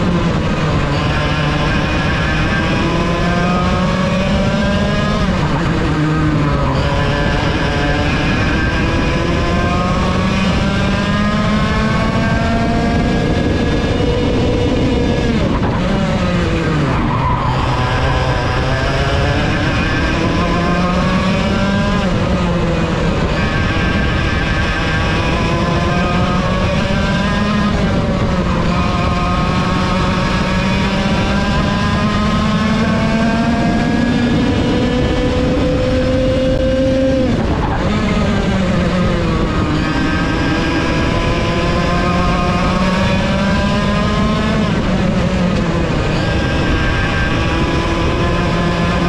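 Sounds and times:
kart engine revving: 0:00.0 - 0:49.0.

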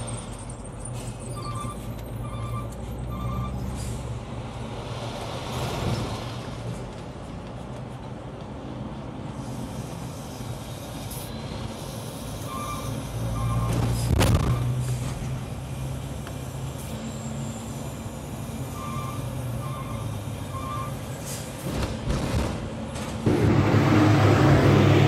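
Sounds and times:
reversing alarm beeping: 0:01.2 - 0:03.7, 0:12.4 - 0:13.8, 0:18.6 - 0:21.1
diesel truck engine running: 0:14.9 - 0:25.0.

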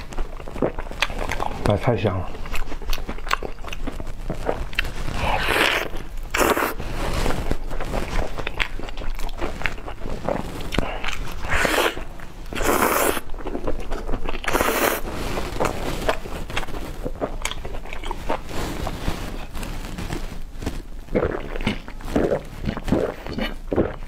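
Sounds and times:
chewing with crackling clicks: 0:00.0 - 0:06.8, 0:07.5 - 0:24.0
gulping soda: 0:21.1 - 0:24.0.

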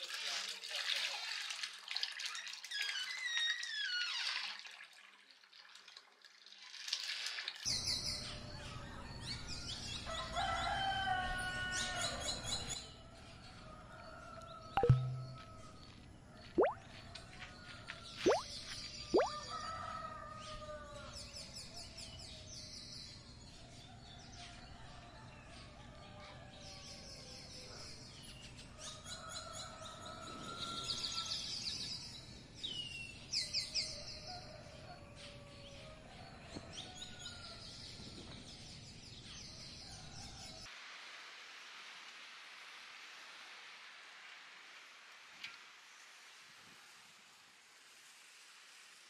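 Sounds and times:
songbirds chirping and trilling: 0:07.7 - 0:40.7.

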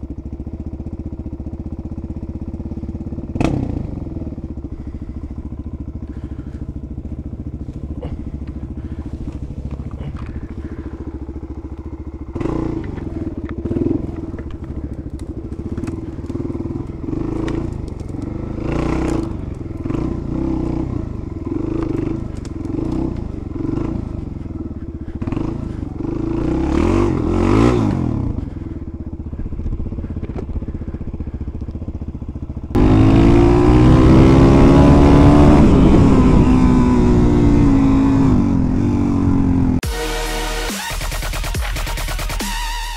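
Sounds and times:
motorcycle engine revving: 0:00.0 - 0:42.9
twigs cracking against bike: 0:06.1 - 0:12.0, 0:12.8 - 0:20.0, 0:21.7 - 0:23.4, 0:29.3 - 0:31.8.

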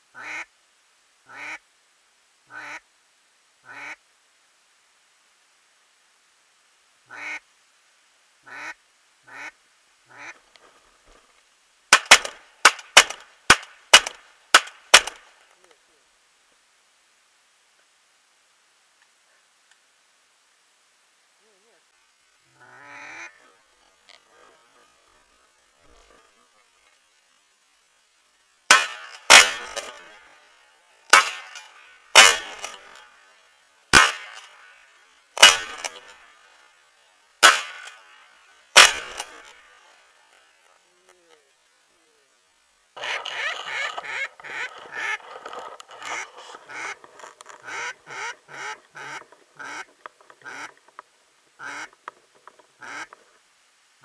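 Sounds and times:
duck quacks: 0:00.1 - 0:00.5, 0:01.3 - 0:01.6, 0:02.5 - 0:02.8, 0:03.6 - 0:04.0, 0:07.1 - 0:07.4, 0:08.4 - 0:10.4, 0:22.5 - 0:25.1, 0:43.0 - 0:50.8, 0:51.6 - 0:52.0, 0:52.8 - 0:53.2
shotgun shots: 0:11.9 - 0:15.2, 0:28.7 - 0:30.2, 0:31.1 - 0:33.0, 0:33.9 - 0:34.5, 0:35.4 - 0:36.1, 0:37.4 - 0:38.0, 0:38.8 - 0:39.5.

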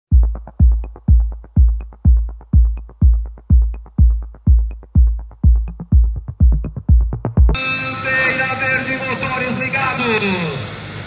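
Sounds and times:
heavy kick drum: 0:00.1 - 0:07.6
electronic dance music: 0:00.1 - 0:09.0.

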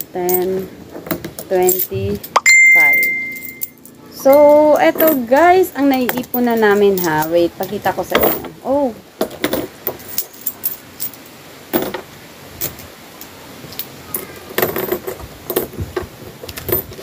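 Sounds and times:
coins clinking: 0:01.6 - 0:08.4, 0:09.9 - 0:11.2.

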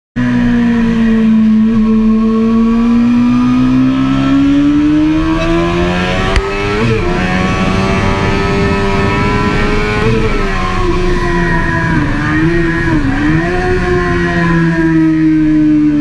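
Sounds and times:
motorcycle engine accelerating: 0:00.2 - 0:16.0
wind rush: 0:04.0 - 0:15.0.

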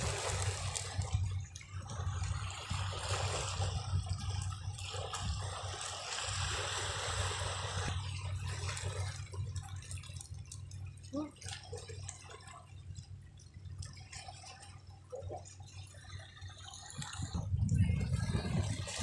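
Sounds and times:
sea waves washing over rocks: 0:00.0 - 0:01.3
steady low rumble: 0:00.0 - 0:19.0.

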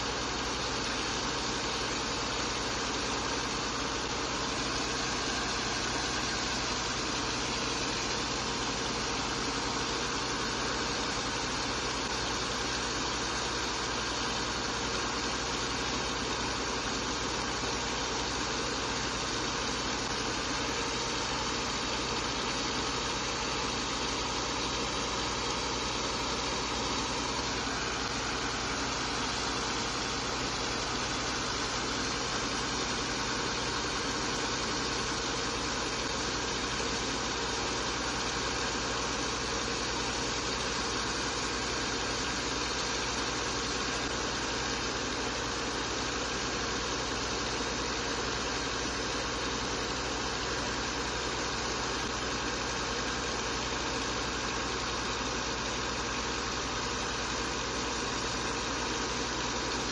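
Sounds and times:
pump engine running: 0:00.0 - 0:59.9.

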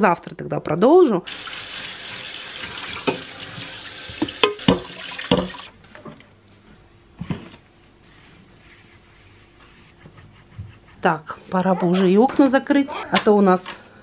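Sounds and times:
kitchen tap running: 0:01.3 - 0:05.7
dishes clinking and knocking: 0:04.2 - 0:05.7.

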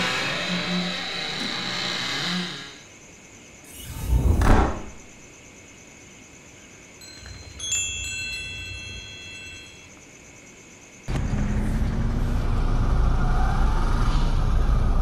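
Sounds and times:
small brass bells ringing: 0:07.0 - 0:09.9.

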